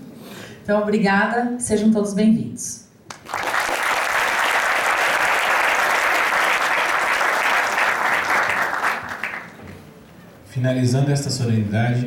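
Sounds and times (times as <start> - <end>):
audience applause: 3.1 - 9.8.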